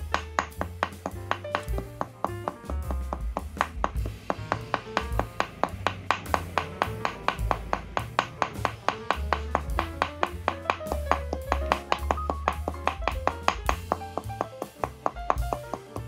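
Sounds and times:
deep bass line: 0.0 - 16.0.

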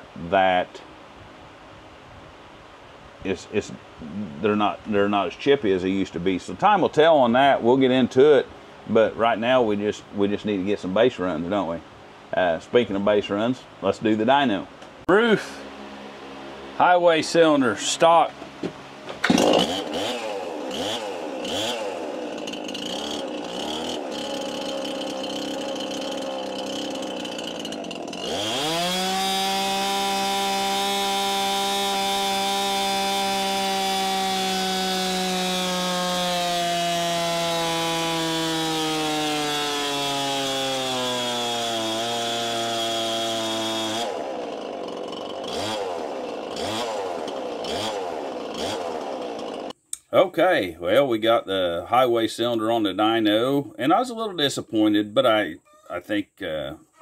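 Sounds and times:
chainsaw engine revving: 15.2 - 49.8.

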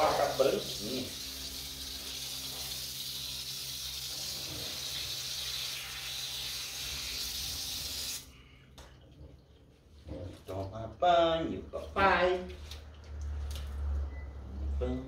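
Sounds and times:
garden hose spraying water: 0.0 - 8.3.

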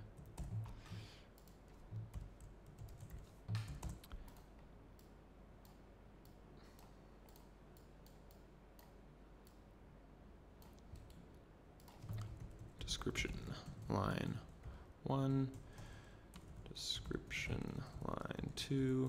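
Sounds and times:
keyboard typing: 0.1 - 4.5, 11.8 - 14.8.

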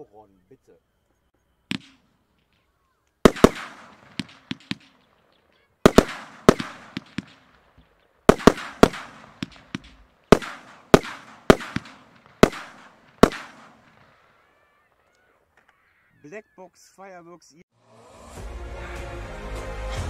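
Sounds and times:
firework battery bangs: 1.7 - 2.1, 3.2 - 14.2.

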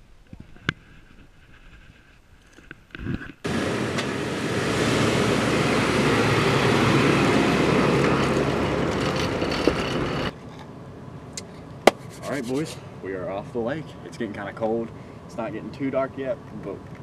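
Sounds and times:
rush of wind and water: 3.5 - 8.0
motorboat engine hum: 3.5 - 10.7.

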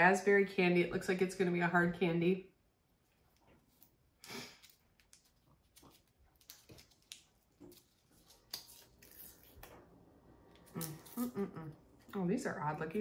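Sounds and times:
candy wrapper crinkling: 3.7 - 9.7.

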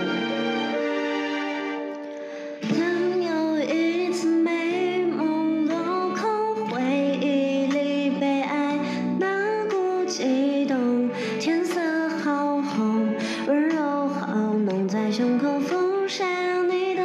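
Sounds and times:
woman singing into microphone: 2.6 - 17.0.

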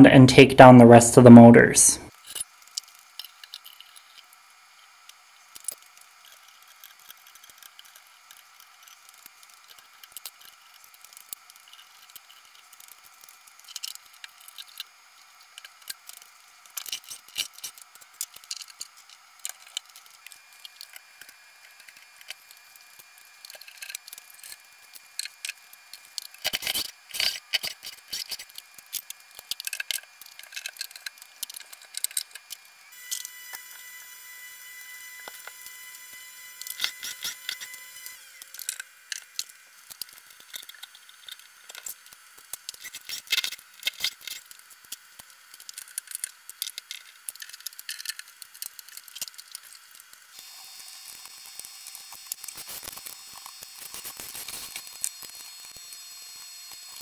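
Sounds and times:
metal parts clicking and rattling: 23.4 - 32.6, 38.4 - 50.2
cordless drill running: 32.4 - 40.3, 50.3 - 57.0.

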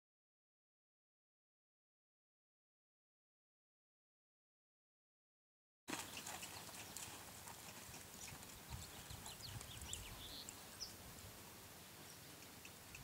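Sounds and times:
horse hooves on sand: 5.9 - 13.0.

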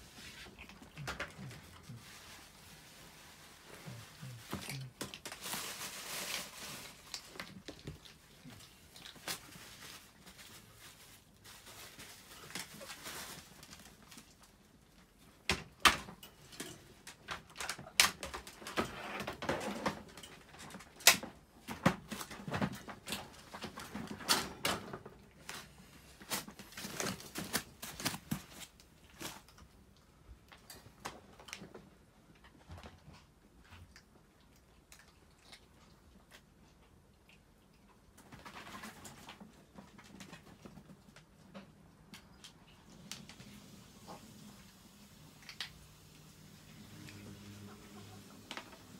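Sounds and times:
soft crinkling: 0.0 - 15.5, 24.9 - 47.7.

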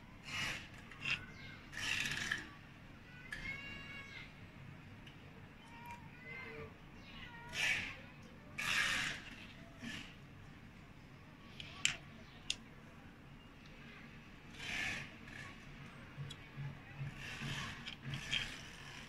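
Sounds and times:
rubbing and scraping of plastic parts: 0.2 - 2.6, 8.6 - 10.2, 14.4 - 19.0
sharp clicks: 11.5 - 12.7.

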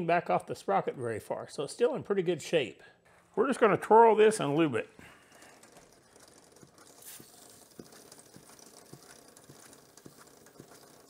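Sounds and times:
drive chain ticking: 4.4 - 11.0
aerosol spray hiss: 7.0 - 7.5.

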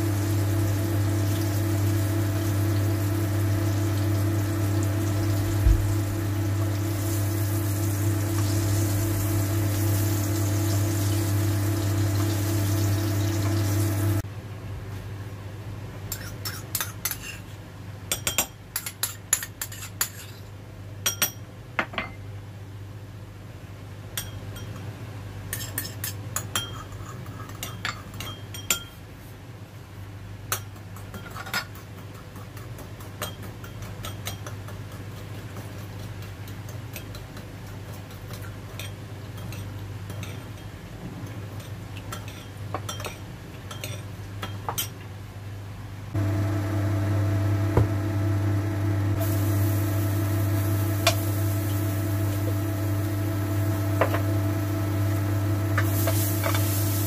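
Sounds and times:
steady hum with tones: 0.0 - 16.2, 45.6 - 57.0
metal spoon clinking on glass bowls: 18.1 - 21.4, 25.5 - 29.0, 33.2 - 34.6, 42.1 - 44.9.

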